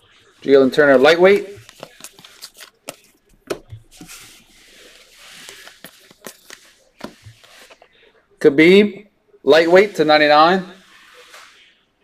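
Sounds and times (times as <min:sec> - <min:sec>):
trading cards clicking and rustling: 0:01.5 - 0:04.2, 0:04.8 - 0:07.9.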